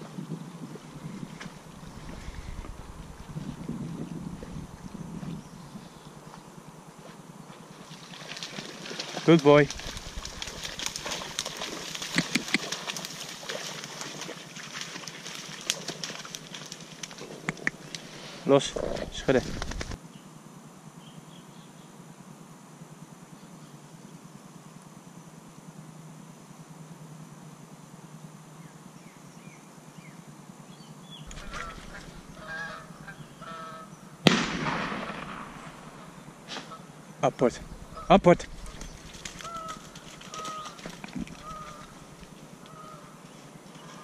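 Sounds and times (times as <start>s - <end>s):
dry reeds and grass rustling: 0.0s - 20.0s, 31.3s - 33.6s, 37.4s - 44.0s
sharp snaps of stems: 9.6s - 13.2s
geese honking: 31.3s - 34.0s, 37.5s - 43.2s
shotgun shot: 34.2s - 36.7s.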